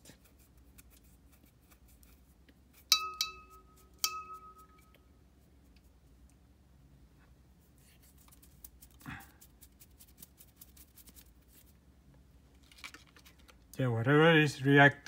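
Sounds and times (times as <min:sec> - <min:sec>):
faint room hum: 0:00.0 - 0:15.0.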